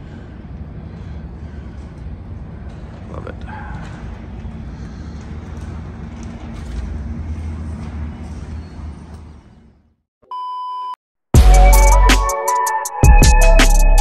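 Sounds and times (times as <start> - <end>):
traffic rumble: 0.0 - 9.9.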